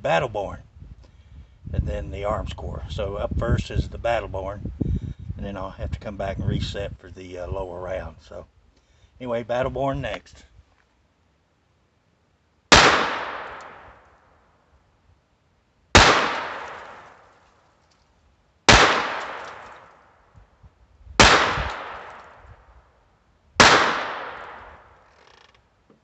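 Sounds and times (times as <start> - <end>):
pistol shots: 12.7 - 14.0, 16.0 - 17.3, 18.7 - 19.9, 21.2 - 22.4, 23.6 - 24.9.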